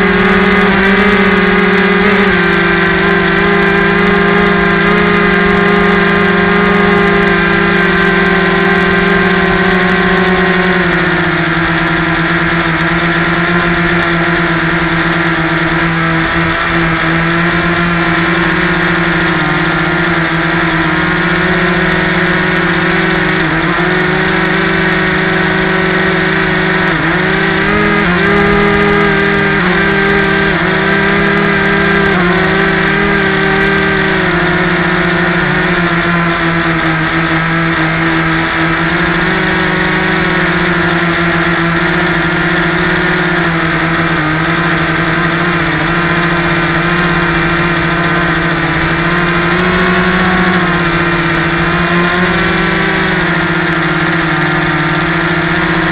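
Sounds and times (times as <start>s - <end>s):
model airplane propeller drone: 0.0s - 55.9s.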